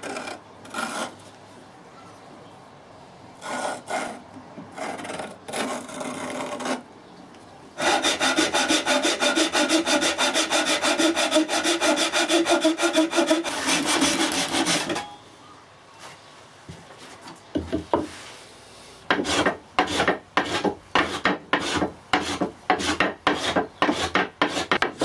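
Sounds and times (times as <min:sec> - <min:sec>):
handsaw cutting wood: 0:03.4 - 0:06.8, 0:07.8 - 0:15.1, 0:19.1 - 0:24.9.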